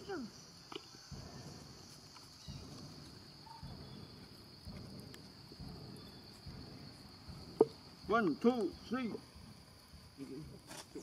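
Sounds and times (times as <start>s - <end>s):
insects droning: 0.0s - 11.0s
faint low rumbles: 0.3s - 11.0s.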